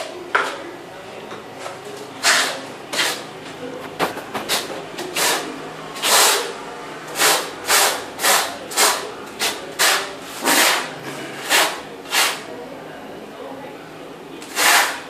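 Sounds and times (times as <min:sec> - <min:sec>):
trowel scraping adhesive on tile: 0:02.2 - 0:03.2, 0:03.9 - 0:06.5, 0:07.2 - 0:12.5, 0:14.4 - 0:15.0.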